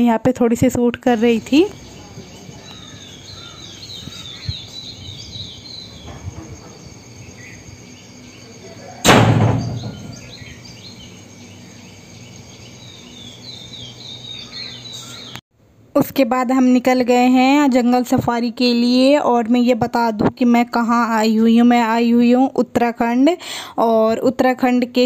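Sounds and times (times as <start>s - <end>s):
small birds chirping: 0.6s - 15.4s
high insect drone: 1.2s - 15.4s.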